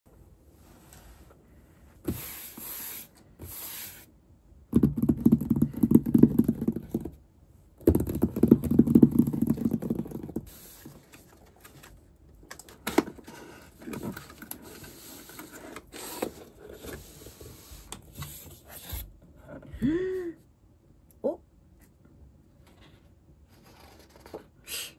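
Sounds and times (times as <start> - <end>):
fingertips tapping on cardboard: 4.8 - 7.2.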